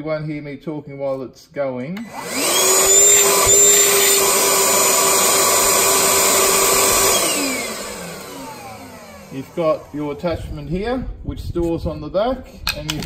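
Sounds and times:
shop vacuum motor whining: 2.0 - 10.7.

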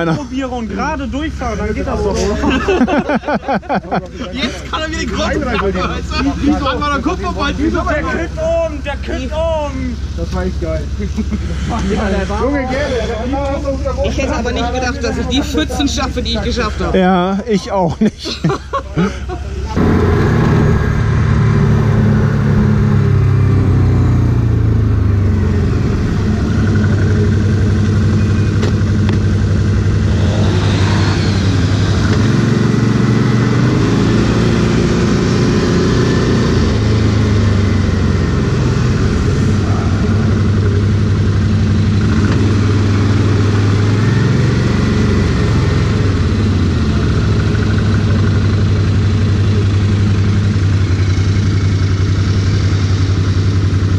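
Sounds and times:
atv engine revving: 19.7 - 53.9.

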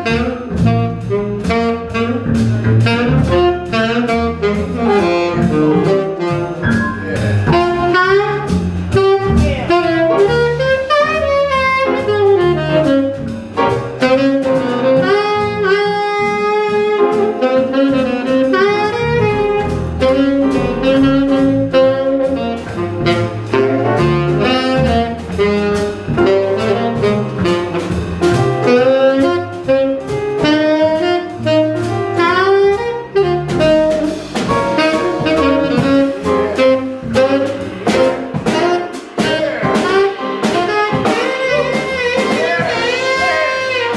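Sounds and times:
drum kit: 0.0 - 43.9
piano: 0.0 - 43.9
saxophone solo: 0.0 - 43.9
upright bass: 0.0 - 43.9.

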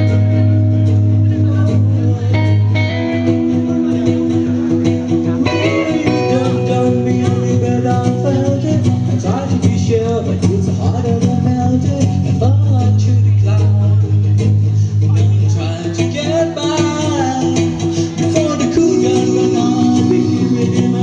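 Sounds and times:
guitar-led music through speakers: 0.0 - 21.0
man singing into microphone: 3.5 - 21.0.

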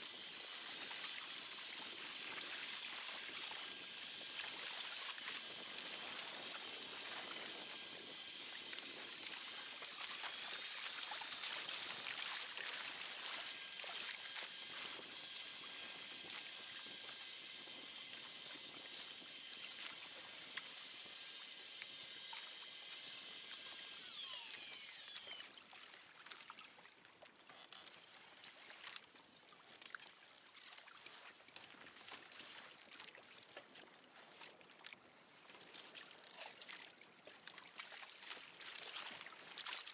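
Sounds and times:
small electric motor whining: 0.0 - 26.6, 27.4 - 28.6, 30.2 - 32.4.

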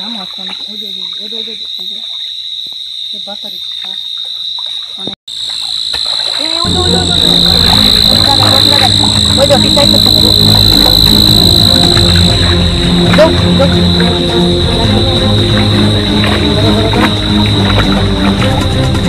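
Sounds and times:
frogs calling: 0.0 - 19.0
night insects chirring: 0.0 - 19.0
loud low rumble: 6.7 - 19.0.

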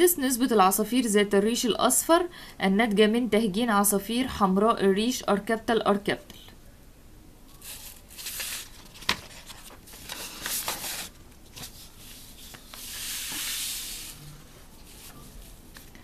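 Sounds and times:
paper rustling: 7.6 - 16.0.

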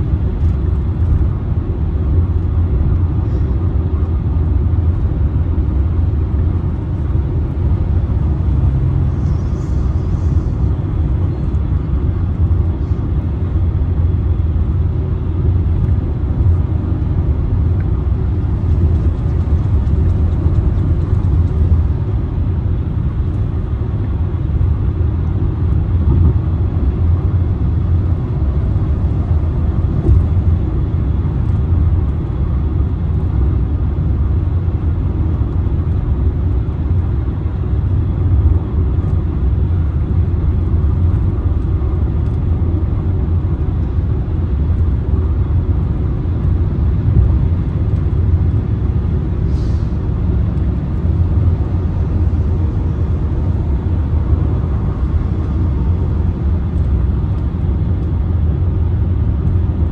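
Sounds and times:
vehicle cabin road rumble: 0.0 - 59.9.

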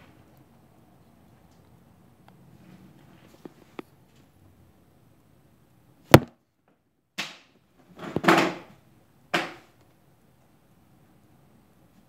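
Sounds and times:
sharp handling knock: 6.1 - 6.3.

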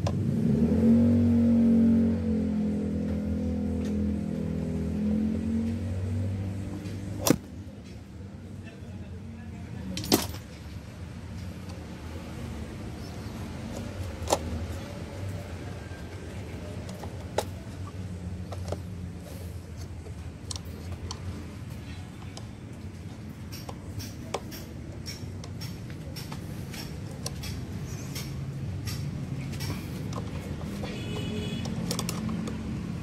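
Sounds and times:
plastic lever clicking: 29.6 - 32.6.

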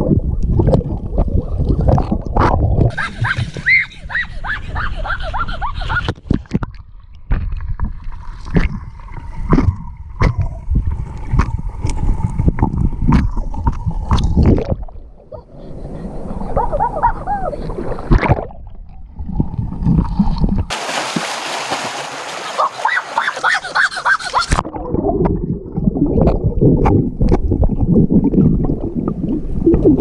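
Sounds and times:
air bubbles gurgling: 0.0 - 3.1, 6.6 - 15.3, 24.5 - 30.0
muffled underwater splashing: 5.9 - 30.0.

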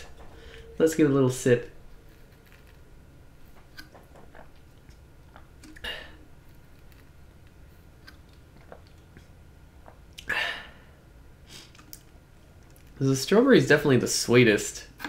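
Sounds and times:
person breathing: 0.0 - 0.8
swallowing and mouth clicks: 8.0 - 10.3.

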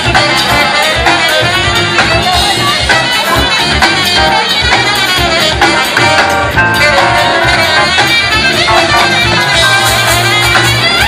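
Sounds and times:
live jazz-rock band playing: 0.0 - 11.0.

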